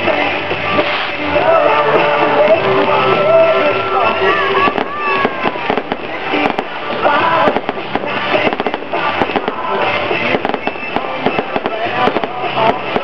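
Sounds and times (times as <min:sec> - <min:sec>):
fireworks bangs: 0:00.0 - 0:13.0
music playing: 0:00.0 - 0:13.0.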